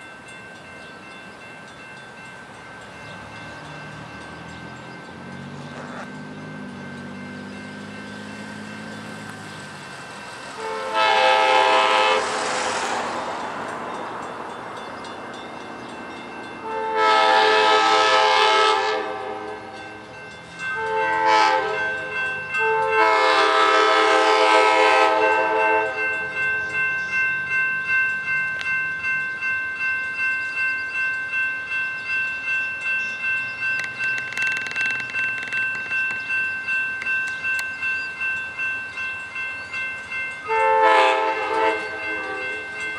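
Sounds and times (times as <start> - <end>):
crossing warning bells ringing: 0.0 - 42.9
locomotive air horn: 10.5 - 13.0, 16.6 - 19.8, 20.7 - 26.3, 40.5 - 42.6.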